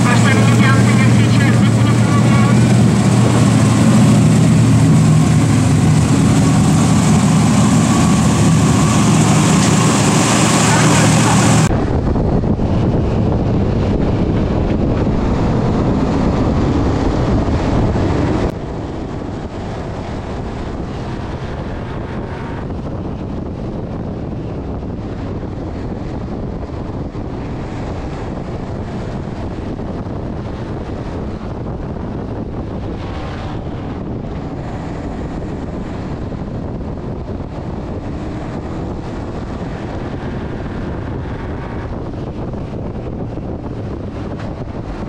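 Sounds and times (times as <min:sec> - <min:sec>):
truck engine drone: 0:00.0 - 0:45.0
wind buffeting microphone: 0:00.0 - 0:45.0.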